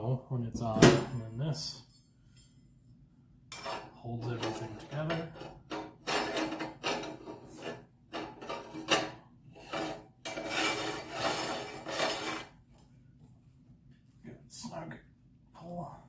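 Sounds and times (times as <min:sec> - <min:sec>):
metal threads scraping: 0:03.5 - 0:12.5.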